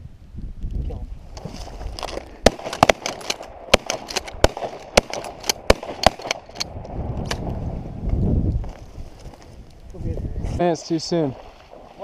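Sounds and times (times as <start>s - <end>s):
shotguns firing: 2.4s - 6.7s.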